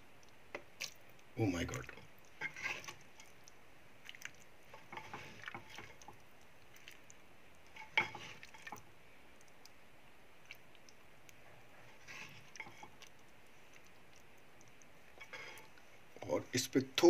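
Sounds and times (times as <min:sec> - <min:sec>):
ladle squelching in curry: 0:01.8 - 0:08.8, 0:10.4 - 0:16.2
ladle scraping bowl: 0:02.4 - 0:03.0, 0:04.7 - 0:06.0.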